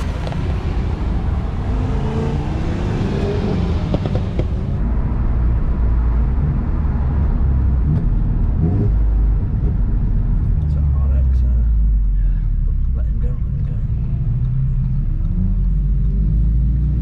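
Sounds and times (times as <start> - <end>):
cars accelerating past: 0.0 - 5.3
engine and road drone in car: 0.0 - 17.0.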